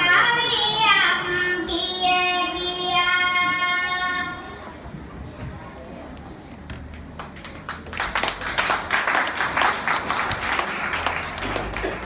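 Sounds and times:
audience applauding: 7.1s - 12.0s.

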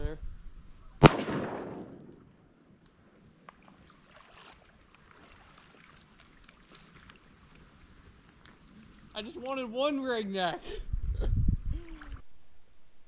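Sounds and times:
shotgun shot echo: 1.0s - 2.4s
faint water lapping: 2.9s - 12.3s
small ticks: 6.2s - 8.6s.

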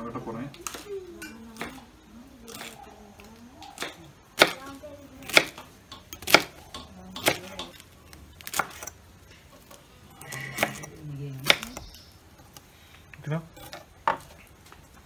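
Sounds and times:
knife chopping on wooden board: 3.8s - 4.6s, 6.2s - 6.6s.

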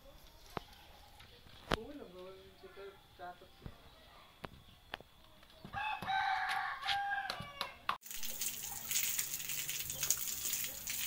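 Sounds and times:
garden hose spraying water: 0.0s - 2.6s, 8.0s - 11.0s.

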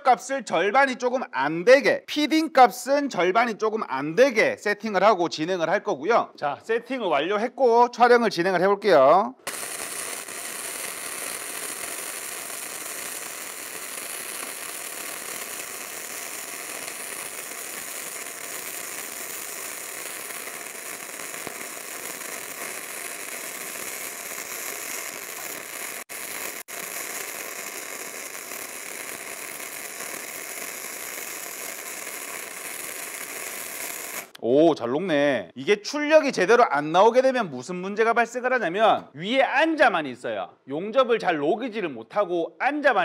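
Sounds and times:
welding arc crackling sizzle: 9.4s - 34.4s.

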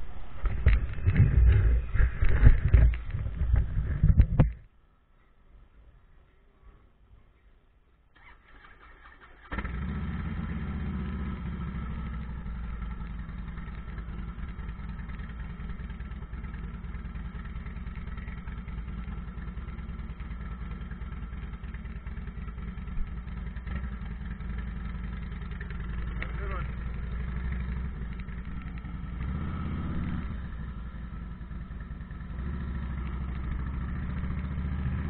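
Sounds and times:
motorcycle engine starting and idling: 8.1s - 35.0s.

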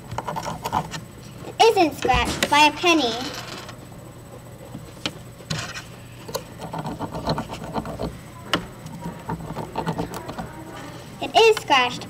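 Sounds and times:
nail scraping mineral: 5.5s - 8.1s.

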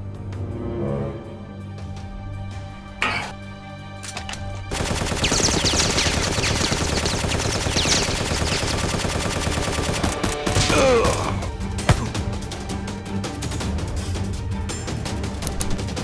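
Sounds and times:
quiet background music: 0.0s - 16.0s
rapid automatic gunfire: 4.7s - 10.6s.

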